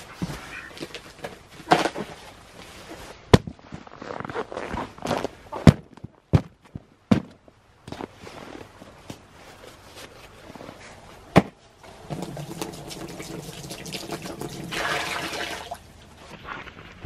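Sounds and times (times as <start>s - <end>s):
water pouring into rubber pan: 12.1s - 15.8s.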